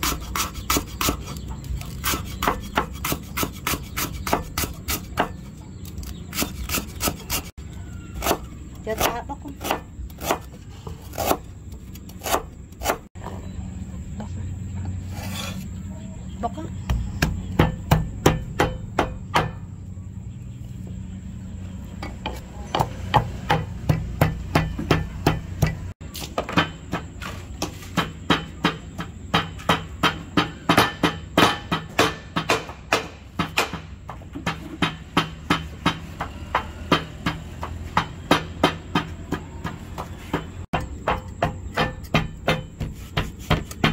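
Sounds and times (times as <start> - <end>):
pestle pounding in mortar: 16.9 - 19.7, 22.1 - 43.9.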